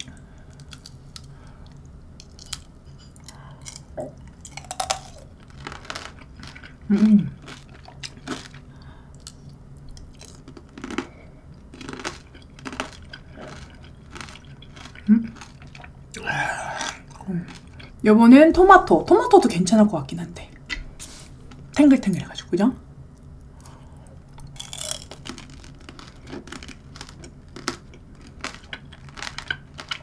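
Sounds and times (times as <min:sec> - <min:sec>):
crunching and chewing candy: 0:00.0 - 0:18.0, 0:23.6 - 0:30.0
person humming: 0:16.2 - 0:17.0.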